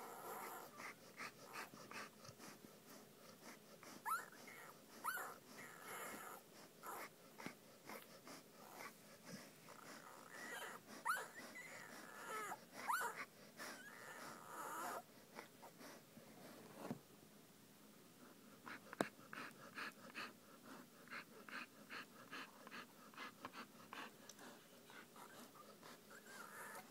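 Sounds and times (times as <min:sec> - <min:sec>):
puppies whimpering and squeaking: 0:04.0 - 0:07.1, 0:09.8 - 0:15.0, 0:25.2 - 0:26.9.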